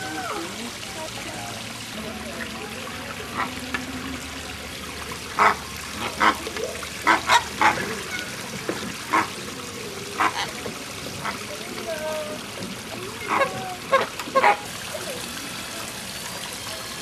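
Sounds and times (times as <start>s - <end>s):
water trickling: 0.0s - 17.0s
flamingos honking: 1.5s - 11.4s, 13.0s - 14.7s.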